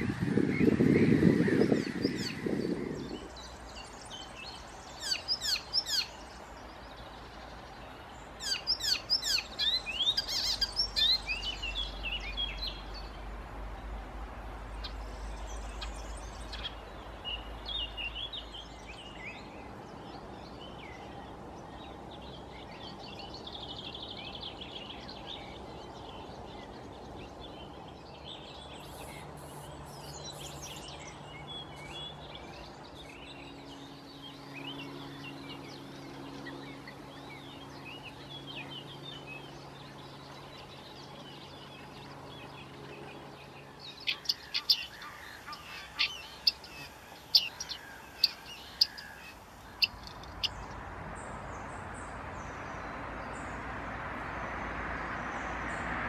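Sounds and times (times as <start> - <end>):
warbler fast chattering song: 0.0 - 13.1, 27.7 - 50.8
soft bird calls: 0.0 - 13.2, 22.7 - 50.8.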